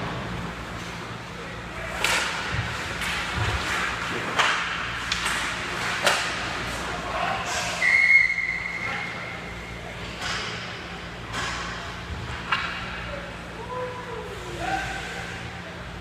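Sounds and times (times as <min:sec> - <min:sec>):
hockey sticks and puck clacking: 0:01.9 - 0:09.2, 0:10.0 - 0:13.0
referee's whistle: 0:07.8 - 0:08.9.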